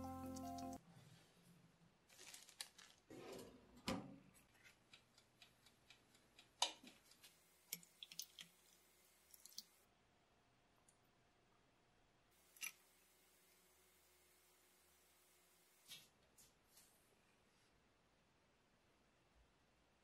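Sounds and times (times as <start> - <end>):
parchment paper rustling: 2.1 - 3.2.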